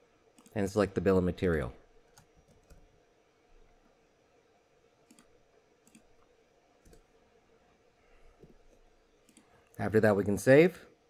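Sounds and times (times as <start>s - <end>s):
computer mouse and keyboard clicks: 5.0s - 6.2s, 6.8s - 7.1s, 8.4s - 9.8s.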